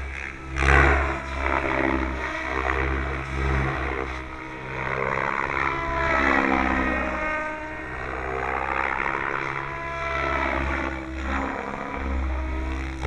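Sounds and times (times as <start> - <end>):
model helicopter rotor drone: 0.0 - 13.0.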